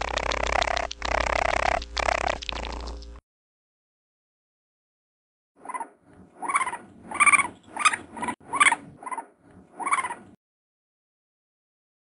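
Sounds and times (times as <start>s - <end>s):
raccoon short pitched calls: 5.7s - 10.2s.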